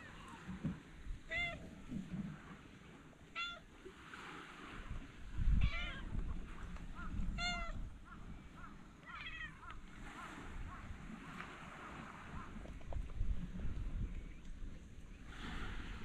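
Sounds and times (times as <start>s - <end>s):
cats meowing: 1.3s - 1.8s, 3.3s - 3.7s, 5.6s - 6.3s, 7.0s - 7.9s, 9.0s - 9.8s
cat chirps: 3.4s - 3.6s, 7.0s - 7.8s.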